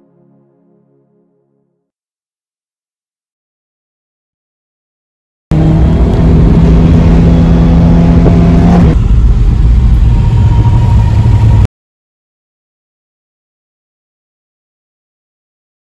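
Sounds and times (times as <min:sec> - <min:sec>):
car engine from inside cabin: 0:05.5 - 0:11.6.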